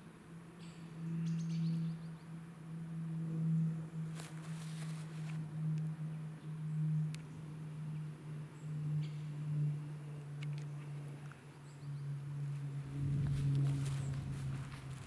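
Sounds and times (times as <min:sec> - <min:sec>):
steady low hum: 0:00.0 - 0:15.0
footsteps through tall grass: 0:04.1 - 0:05.4, 0:13.1 - 0:15.0.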